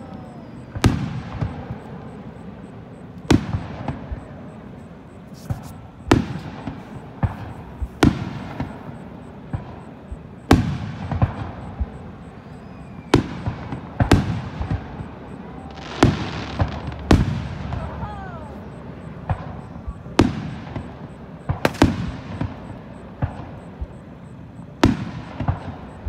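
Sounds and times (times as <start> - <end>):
firework shells booming: 0.6 - 26.0
small firework pops: 13.0 - 17.9, 19.2 - 24.0, 24.8 - 26.0.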